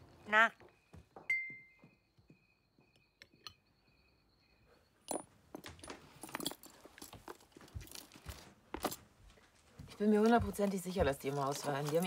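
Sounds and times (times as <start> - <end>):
faint high chirps: 0.4 - 5.0.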